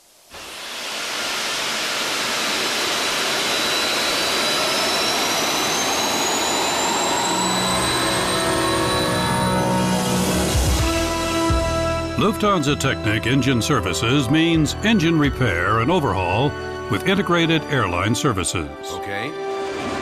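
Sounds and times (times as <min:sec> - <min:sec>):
jet engine spooling up: 0:00.0 - 0:20.0
music: 0:07.8 - 0:20.0.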